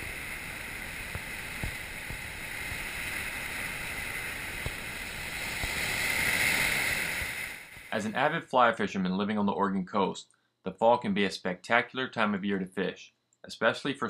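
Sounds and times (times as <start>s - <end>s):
surf washing over rocks: 0.0s - 8.3s.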